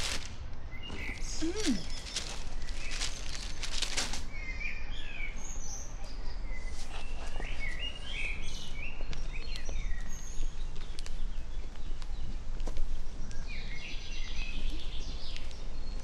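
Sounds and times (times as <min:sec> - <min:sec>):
small birds chirping: 0:00.0 - 0:16.0.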